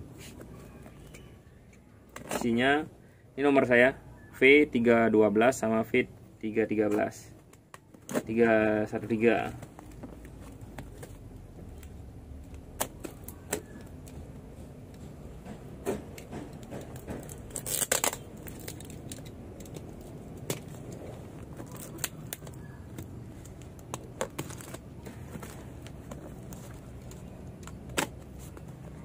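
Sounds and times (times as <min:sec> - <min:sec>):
knife cutting tape and cardboard: 0:15.9 - 0:28.6
cardboard tearing: 0:17.2 - 0:19.2.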